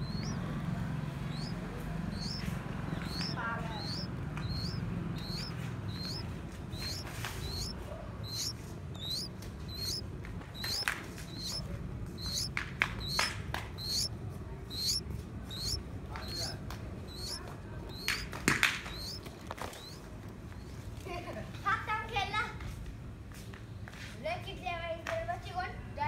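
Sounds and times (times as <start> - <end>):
nestlings cheeping: 0.0 - 20.7
sharp clicks: 1.3 - 10.0, 10.6 - 11.6, 12.2 - 14.1.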